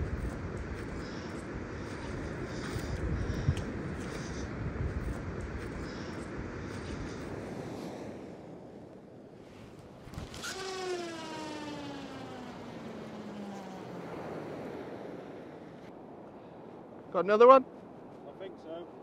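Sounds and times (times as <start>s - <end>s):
wind on microphone: 0.0s - 8.8s.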